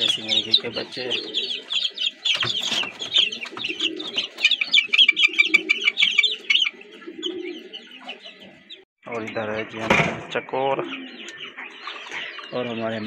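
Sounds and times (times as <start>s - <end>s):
chicks cheeping shrilly: 0.0s - 13.0s.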